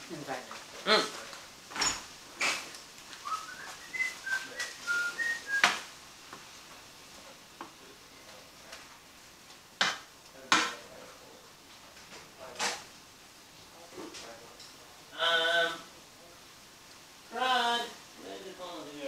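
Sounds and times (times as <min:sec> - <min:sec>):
person whistling quick notes: 0:03.2 - 0:05.8.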